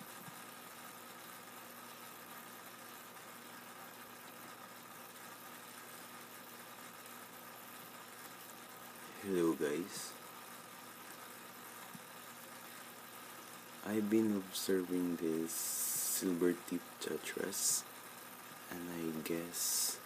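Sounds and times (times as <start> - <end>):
faint machine hum: 0.0 - 20.0
even hiss: 8.2 - 20.0.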